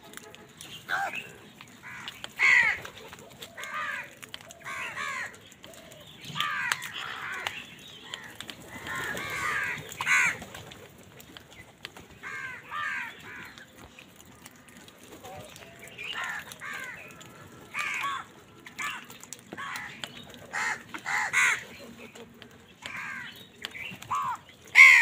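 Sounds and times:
crows cawing: 0:00.9 - 0:10.4, 0:12.2 - 0:13.8, 0:15.4 - 0:22.0, 0:22.8 - 0:23.4, 0:24.1 - 0:25.0.

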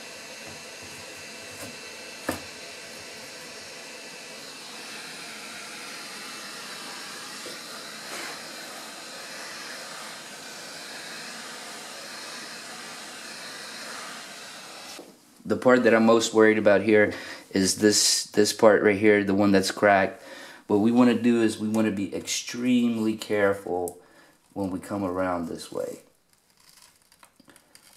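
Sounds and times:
heat gun blowing air: 0:00.0 - 0:16.4.

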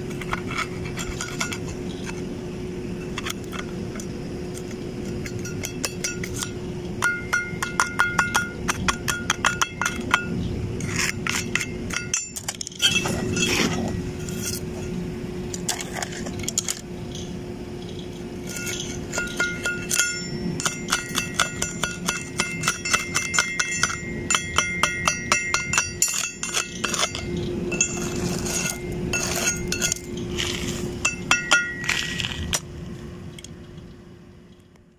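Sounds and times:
steady hum: 0:00.0 - 0:34.9
steel rod clinking on weld: 0:18.5 - 0:30.1, 0:31.0 - 0:32.2.

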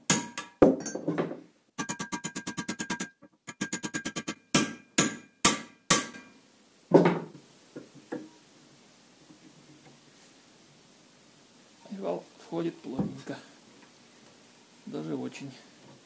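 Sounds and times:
hammer striking metal: 0:00.1 - 0:01.0, 0:01.8 - 0:06.4.

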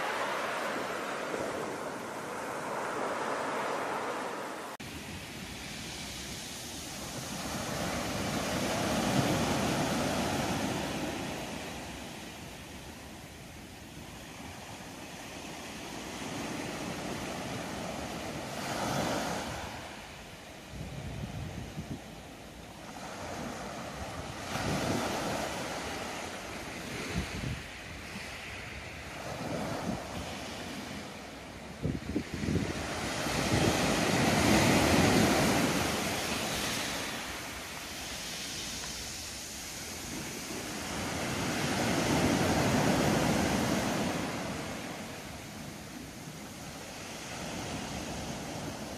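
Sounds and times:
sea waves washing onto beach: 0:00.0 - 0:48.9
wind buffeting microphone: 0:20.6 - 0:22.4, 0:23.0 - 0:30.9, 0:31.6 - 0:45.8.

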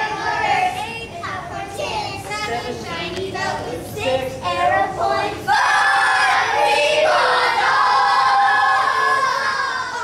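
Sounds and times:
children singing: 0:03.5 - 0:10.0.

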